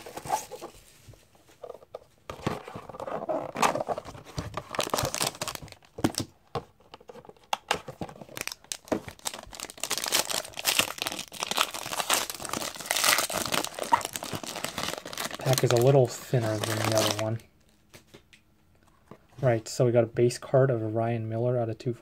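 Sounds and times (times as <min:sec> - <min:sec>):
foil pack crinkling: 0:04.6 - 0:06.2, 0:08.3 - 0:17.4.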